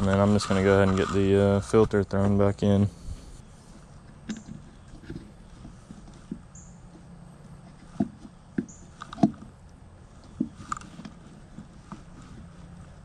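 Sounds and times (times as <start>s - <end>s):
foam rubbing: 0.0s - 1.8s.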